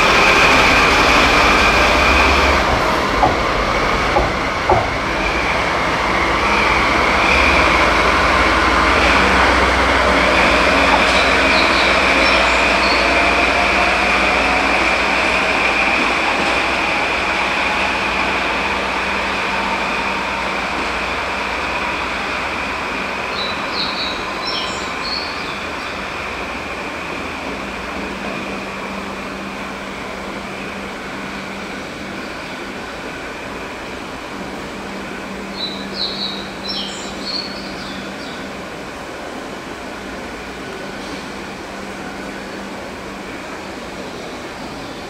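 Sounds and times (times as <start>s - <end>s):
locomotive engine running: 0.0s - 23.0s
wheels clacking over rail joints: 0.2s - 13.8s.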